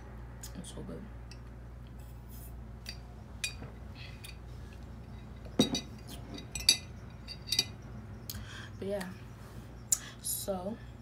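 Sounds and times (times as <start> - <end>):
metal straw clinking glass jar: 5.0 - 7.8.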